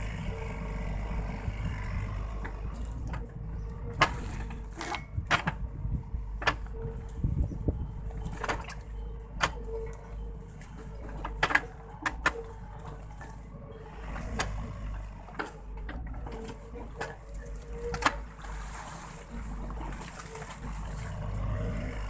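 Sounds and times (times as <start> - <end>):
diesel engine rumbling: 0.0 - 22.0
excavator bucket knocks and clanks: 2.5 - 5.7, 6.4 - 6.9, 8.1 - 10.0, 10.8 - 13.0.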